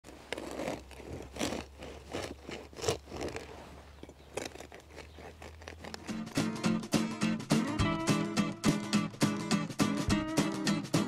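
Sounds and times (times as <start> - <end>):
bread knife sawing crust: 0.1 - 3.8.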